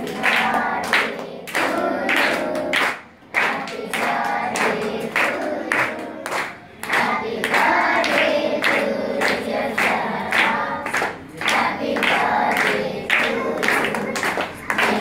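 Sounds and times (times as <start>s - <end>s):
children singing: 0.0s - 15.0s
rhythmic clapping: 0.0s - 15.0s.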